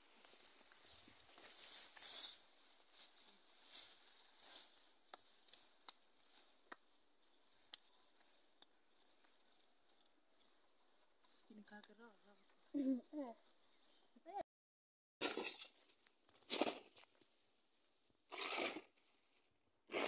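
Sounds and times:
vines and leaves rustling: 0.0 - 14.3.

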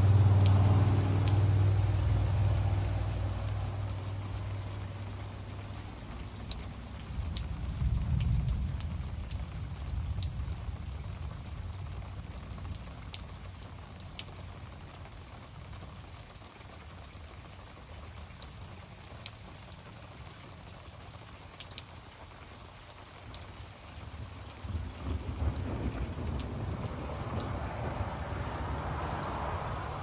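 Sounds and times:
raindrops ticking close by: 0.0 - 30.0
steady rain falling: 0.0 - 30.0
low rumble of thunder: 6.2 - 13.2, 24.2 - 30.0.

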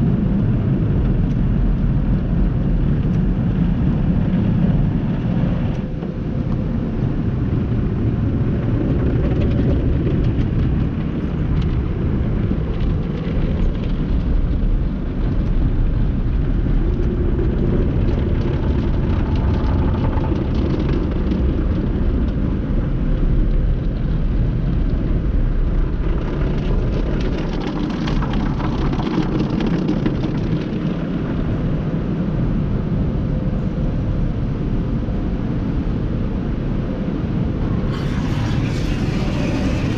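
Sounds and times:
car wash water spray and brushes: 37.6 - 39.9
water spattering and slapping: 37.8 - 39.9.

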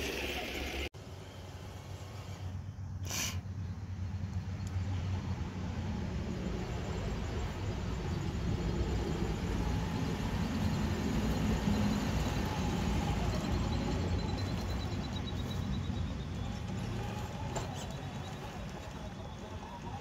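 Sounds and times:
rc car motor whining: 8.2 - 20.0.

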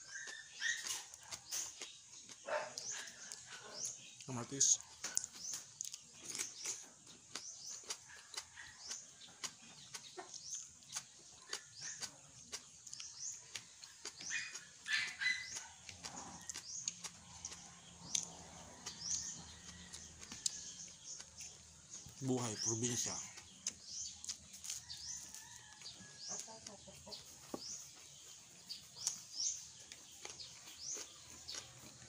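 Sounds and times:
birds chirping: 0.0 - 32.0
person chewing and lip-smacking: 0.1 - 3.5, 5.0 - 22.2, 23.3 - 25.1, 28.7 - 32.0.

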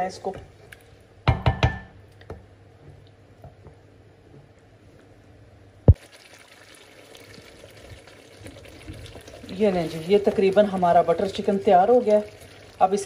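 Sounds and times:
faint steady hum: 0.0 - 13.0
wooden spoon knocking on pan: 1.2 - 2.0.

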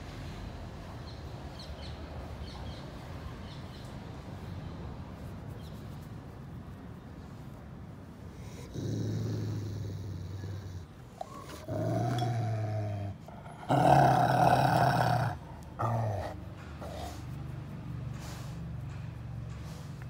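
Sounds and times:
dog growling: 8.5 - 17.2.

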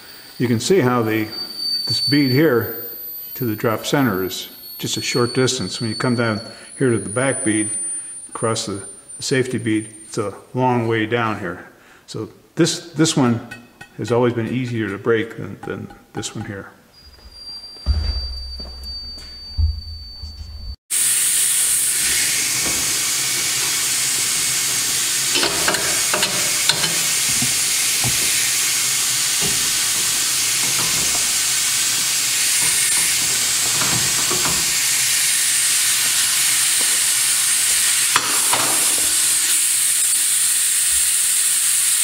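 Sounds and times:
air hissing out of tire: 6.4 - 9.1, 20.9 - 42.0.

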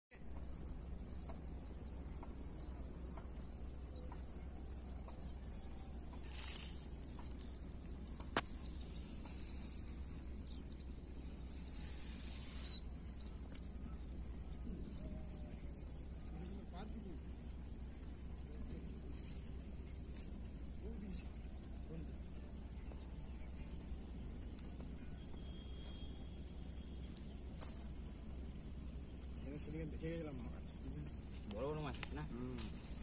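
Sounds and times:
high-pitched insect drone: 2.6 - 33.0
short bird chirps: 11.6 - 14.6.

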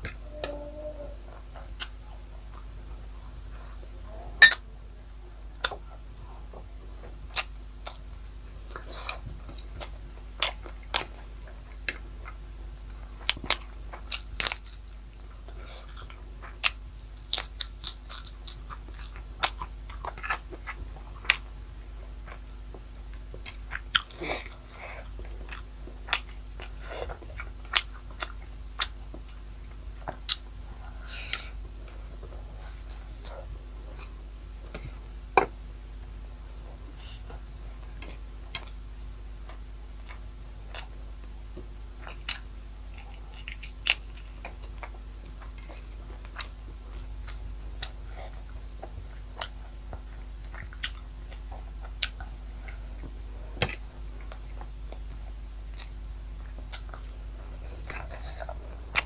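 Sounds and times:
person chewing: 13.2 - 21.4, 23.4 - 29.4, 30.0 - 30.4, 42.0 - 59.0
low hum: 52.2 - 59.0.

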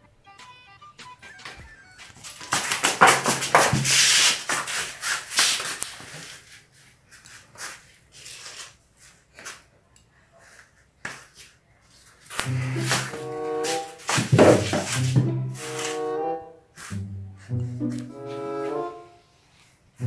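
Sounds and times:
rubbing and scraping: 2.0 - 9.3, 10.5 - 16.2.

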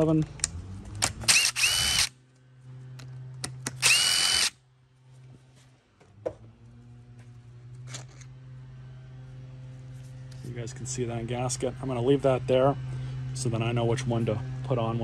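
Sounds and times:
cordless driver motor whine: 1.0 - 2.2, 3.7 - 4.6.

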